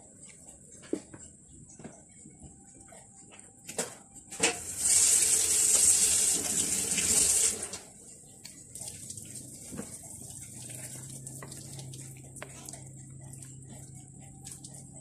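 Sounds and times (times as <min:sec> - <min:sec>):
water running: 0:04.6 - 0:14.8.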